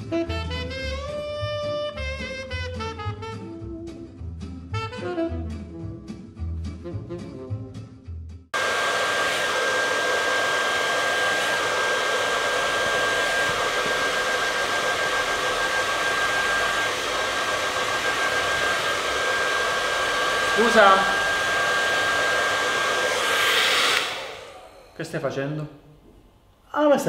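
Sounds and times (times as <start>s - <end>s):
jazz music: 0.0s - 8.1s
hair dryer blowing with whine: 8.6s - 25.6s.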